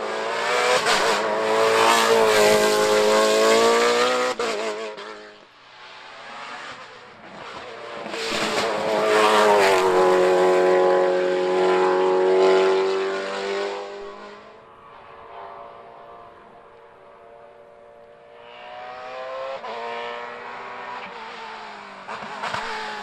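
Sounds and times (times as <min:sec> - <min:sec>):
race car engine at high revs: 0:00.0 - 0:23.0.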